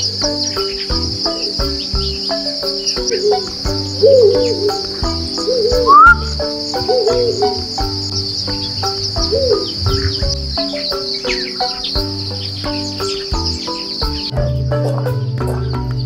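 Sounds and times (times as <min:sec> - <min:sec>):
short arching calls: 0:00.0 - 0:15.0
insects trilling: 0:00.0 - 0:15.9
background music with plucked notes: 0:00.0 - 0:16.0
sharp rising whistle: 0:05.6 - 0:06.3.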